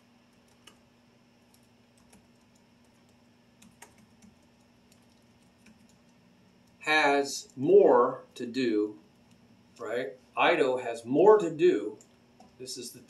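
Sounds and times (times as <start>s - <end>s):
faint steady hum: 0.0s - 13.0s
computer mouse clicks: 1.5s - 6.8s.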